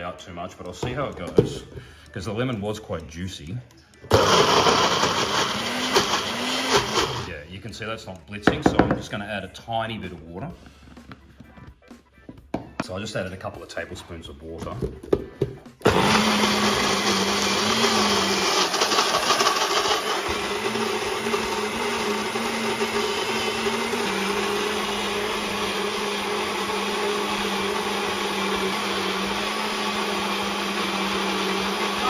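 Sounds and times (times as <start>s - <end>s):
blender motor running: 4.1s - 7.3s, 15.8s - 32.0s.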